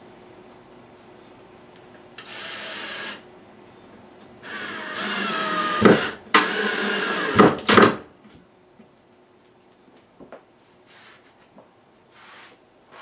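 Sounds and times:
drill driving screw into wood: 2.2s - 3.2s, 4.4s - 8.0s.

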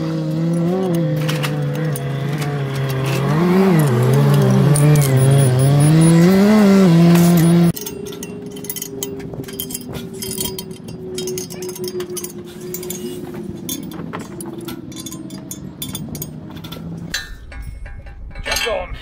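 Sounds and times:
vehicle engine running: 0.0s - 7.8s
steel clinking: 0.4s - 19.0s
ratchet spanner clicking: 3.8s - 6.2s.

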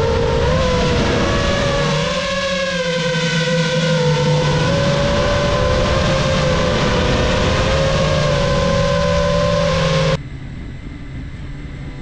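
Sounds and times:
quadcopter propellers whining: 0.0s - 10.2s.

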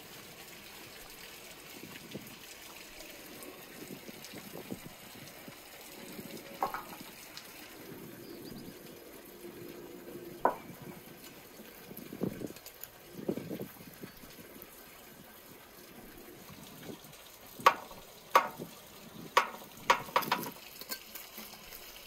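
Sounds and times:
running water: 0.0s - 22.0s
meat landing on metal tray: 6.6s - 7.1s.

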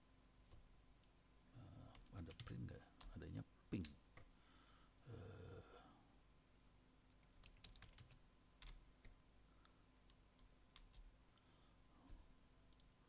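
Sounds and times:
faint keyboard keystrokes: 7.1s - 9.2s.

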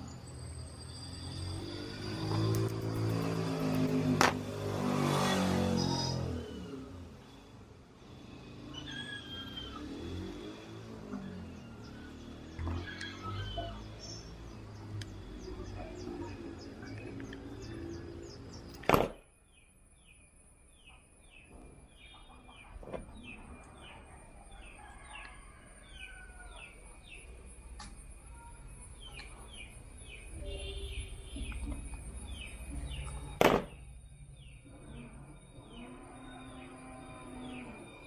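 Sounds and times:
bird chirping: 8.5s - 38.0s.

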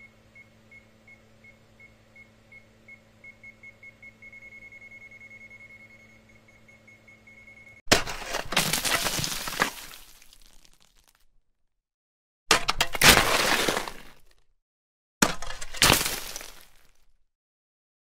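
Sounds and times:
multimeter high beeps: 0.4s - 7.8s.

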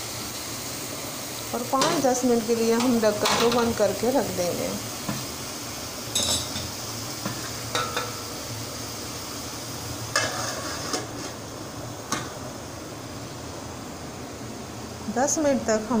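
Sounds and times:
vegetable sizzling in pot: 0.0s - 16.0s
metal lid clanking: 1.8s - 2.1s, 2.8s - 3.8s, 6.1s - 6.8s, 7.7s - 8.3s, 10.1s - 11.3s
metal clinks against pot: 6.1s - 6.7s.

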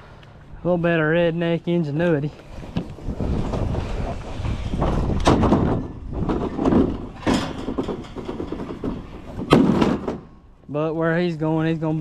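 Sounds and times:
sharp knocks: 5.2s - 10.3s.

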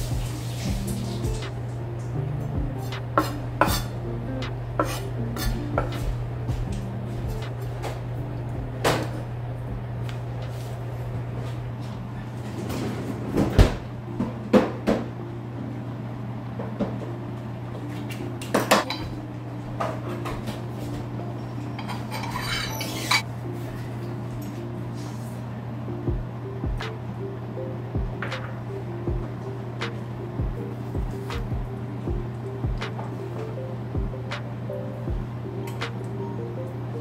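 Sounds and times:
steady low hum: 0.0s - 22.4s, 23.1s - 37.0s
pan and utensils clinking: 21.7s - 23.2s.

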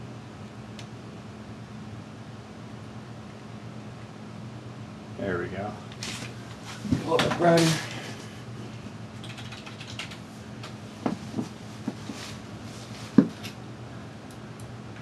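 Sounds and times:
low steady hum: 0.0s - 15.0s
computer keyboard keystrokes: 9.2s - 10.8s.

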